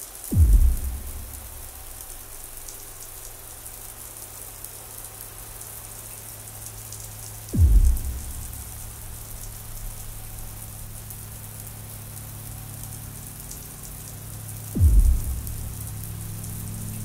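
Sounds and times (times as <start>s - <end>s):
crackling hiss: 0.0s - 17.0s
deep bass hit falling in pitch: 0.3s - 3.3s, 7.6s - 11.0s, 14.8s - 17.0s
low drone: 7.6s - 11.4s, 14.8s - 17.0s.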